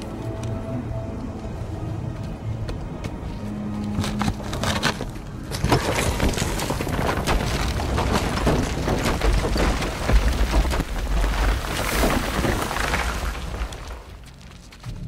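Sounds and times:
rock and debris crashing: 0:04.0 - 0:15.0.

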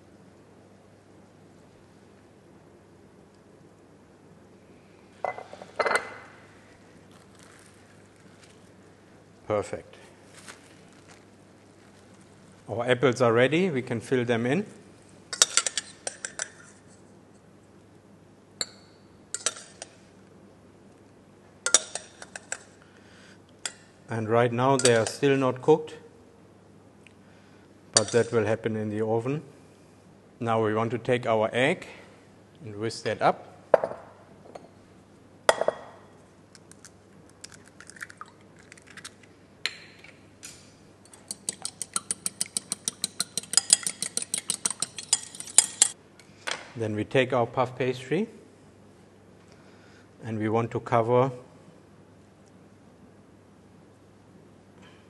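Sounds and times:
metal spoon clinking against pot: 0:15.4 - 0:16.6, 0:18.6 - 0:19.9, 0:21.7 - 0:22.7, 0:24.8 - 0:25.2, 0:41.1 - 0:46.0
egg cracking into bowl: 0:36.5 - 0:40.2
fork whisking egg in bowl: 0:41.1 - 0:46.0.

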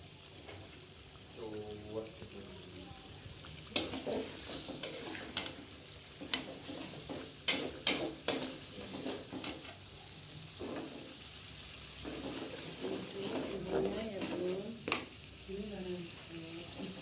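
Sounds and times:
paste sizzling in oil: 0:00.0 - 0:17.0
metal spatula scraping pan: 0:03.8 - 0:05.6, 0:06.2 - 0:09.7, 0:12.0 - 0:14.6.

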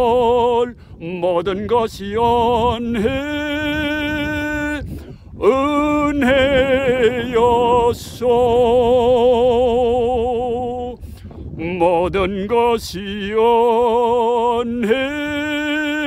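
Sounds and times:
person singing with vibrato: 0:00.0 - 0:11.0.

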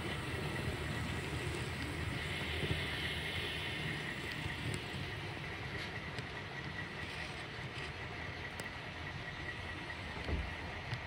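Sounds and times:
faint high whine: 0:00.0 - 0:11.0
train rumble: 0:00.0 - 0:11.0
light ticks: 0:04.2 - 0:05.1, 0:05.7 - 0:08.8.

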